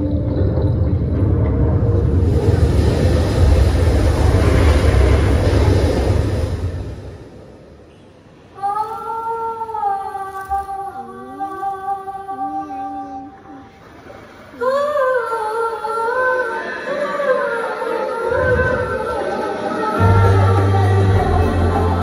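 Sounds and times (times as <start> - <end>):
woman singing wordless notes: 8.5 - 13.7, 14.6 - 22.0.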